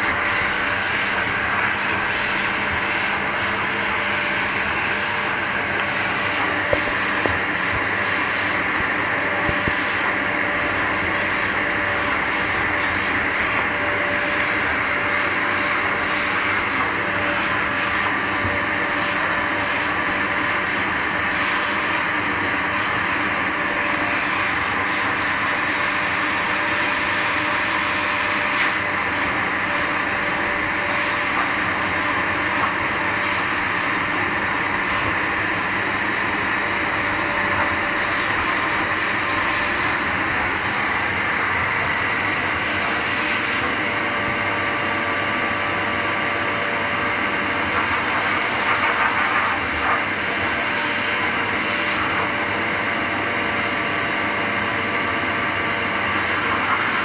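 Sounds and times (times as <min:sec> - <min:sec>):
vacuum cleaner running: 0:00.0 - 0:57.0.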